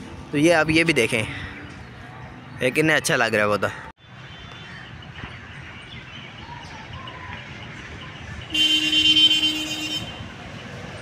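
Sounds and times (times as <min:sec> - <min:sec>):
traffic hum: 0:00.0 - 0:11.0
vehicle horn honk: 0:08.5 - 0:10.3.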